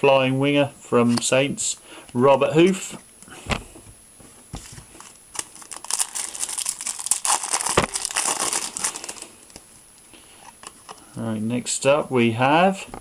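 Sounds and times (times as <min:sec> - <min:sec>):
foil wrapper crinkling and tearing: 0:04.9 - 0:09.6.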